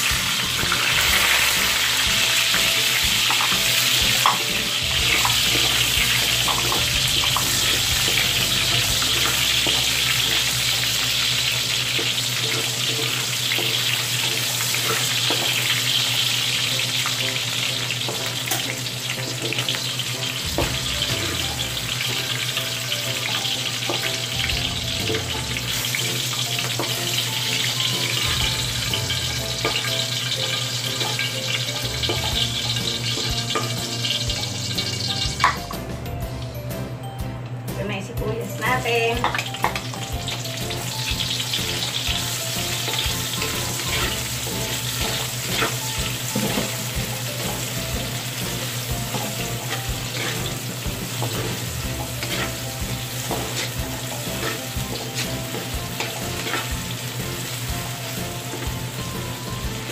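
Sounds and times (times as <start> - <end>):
pepper sizzling in hot oil: 0.0 - 35.6, 39.2 - 59.9
spatula tapping pan: 42.2 - 56.9
wooden spatula scraping wok: 42.8 - 59.9.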